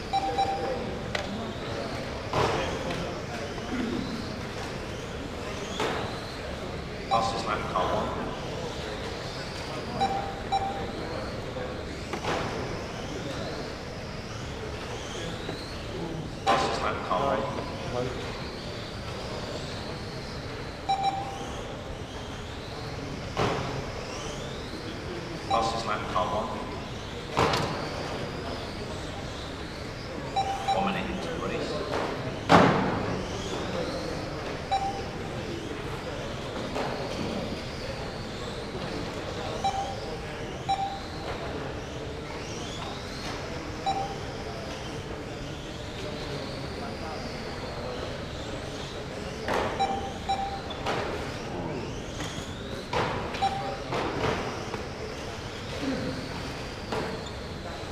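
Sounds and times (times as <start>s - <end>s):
short timer beep: 0.0s - 1.0s, 7.1s - 7.7s, 10.0s - 11.2s, 20.9s - 21.7s, 30.4s - 31.2s, 34.7s - 35.3s, 39.6s - 41.2s, 43.8s - 44.4s, 49.8s - 50.8s, 53.4s - 53.9s.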